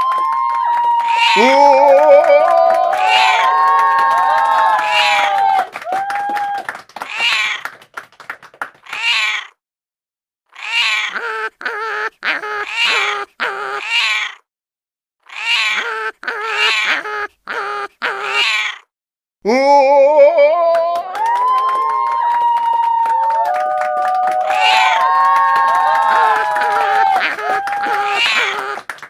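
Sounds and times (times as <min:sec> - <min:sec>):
meow-like calls: 0:00.0 - 0:03.6, 0:07.1 - 0:07.6, 0:08.9 - 0:09.5, 0:10.5 - 0:11.9, 0:12.7 - 0:14.4, 0:15.3 - 0:17.0, 0:18.2 - 0:18.8, 0:24.3 - 0:28.8.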